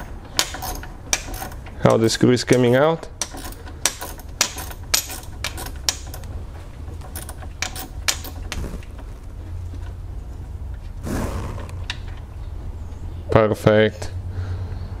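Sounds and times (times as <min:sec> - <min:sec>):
hand ratchet clicking: 0:00.0 - 0:01.7, 0:02.5 - 0:06.4, 0:07.0 - 0:08.6.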